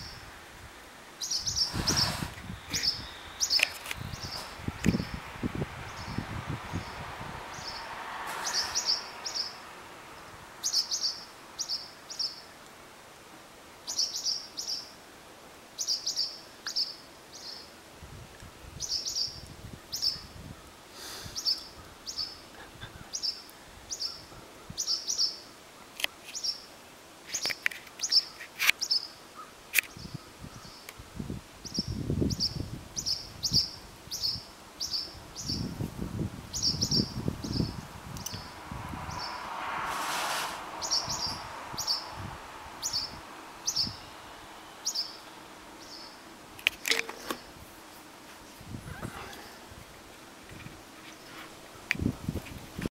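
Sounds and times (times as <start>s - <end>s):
low rumbles: 37.0s - 45.9s.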